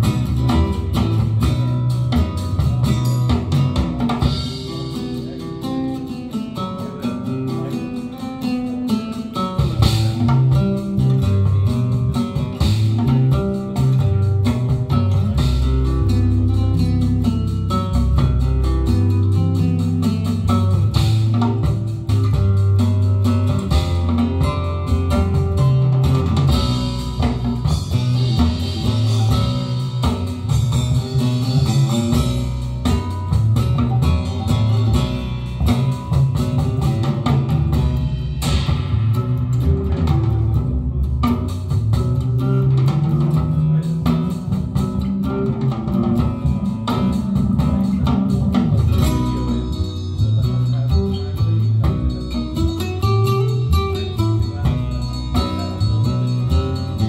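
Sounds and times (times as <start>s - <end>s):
rock music through loudspeakers: 0.0s - 57.0s.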